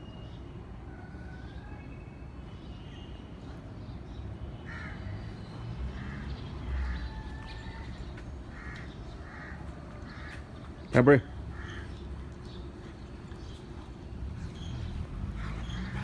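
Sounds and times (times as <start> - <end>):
bird cawing: 4.7 - 5.1, 8.5 - 10.5, 11.5 - 12.0.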